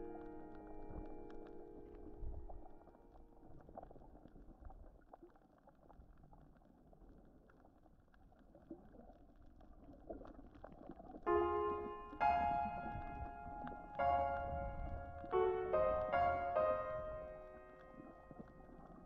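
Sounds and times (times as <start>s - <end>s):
piano music: 0.0s - 3.4s, 11.3s - 19.0s
muffled underwater rumble: 0.0s - 19.0s
small crackles: 0.0s - 19.0s.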